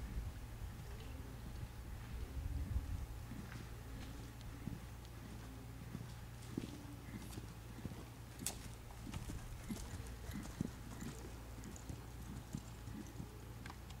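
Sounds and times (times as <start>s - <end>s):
horse hoofbeats on sand: 3.3s - 14.0s.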